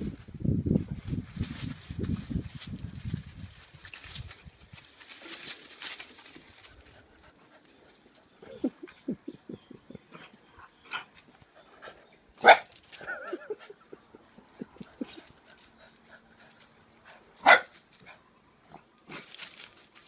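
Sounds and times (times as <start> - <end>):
footsteps in dry leaves: 0.9 - 8.2, 19.1 - 20.0
dog barking sharply: 12.4 - 12.7, 17.4 - 17.7.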